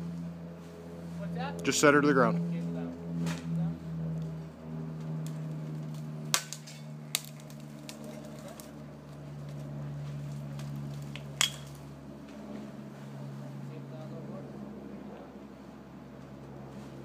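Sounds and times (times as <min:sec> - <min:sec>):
crane engine running: 0:00.0 - 0:17.0
branches snapping: 0:05.0 - 0:08.8, 0:09.4 - 0:11.9.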